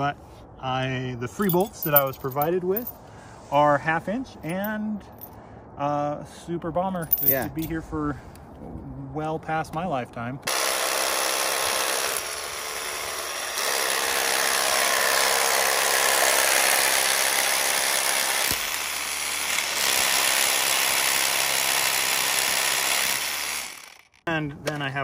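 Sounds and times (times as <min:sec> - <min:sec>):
hammer drill boring into stone: 0:13.6 - 0:24.2.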